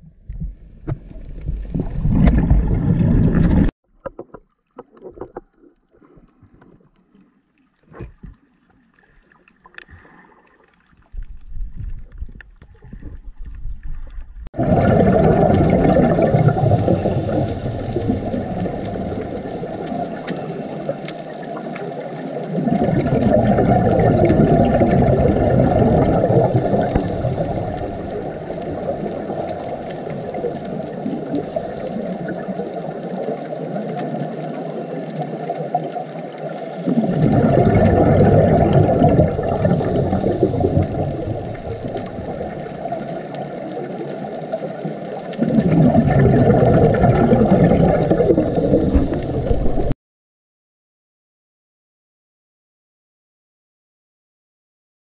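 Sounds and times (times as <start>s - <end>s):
diver exhaling bubbles: 0.0s - 3.7s, 11.3s - 32.9s, 36.5s - 49.9s
muffled underwater rumble: 0.0s - 49.9s.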